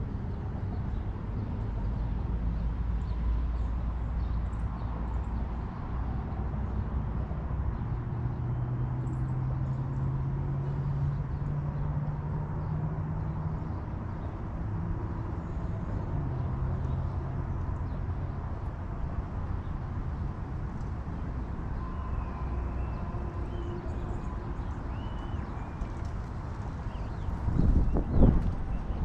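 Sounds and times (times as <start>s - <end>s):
engine hum: 5.2s - 29.0s
constant rumble: 9.0s - 29.0s.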